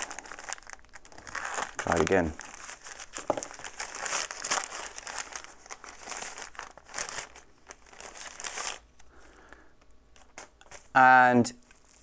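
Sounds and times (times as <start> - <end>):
plastic mailer bag crinkling: 0.0 - 8.9, 11.6 - 12.0.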